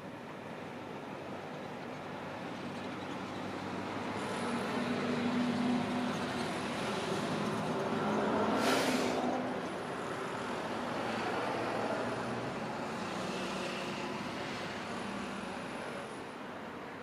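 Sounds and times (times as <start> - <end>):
short hiss: 8.6 - 9.2.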